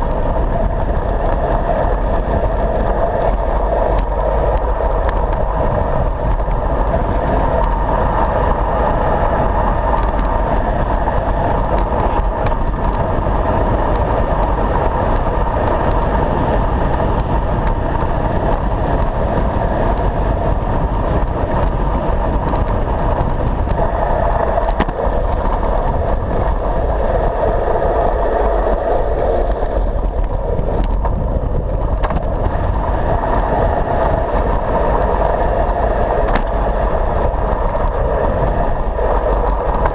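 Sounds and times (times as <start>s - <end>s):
tyre hum on tarmac: 0.0s - 39.9s
wind buffeting camera: 0.0s - 39.9s.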